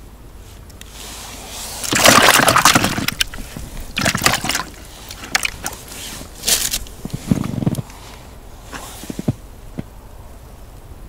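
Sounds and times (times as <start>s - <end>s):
water splashing: 1.8s - 6.9s.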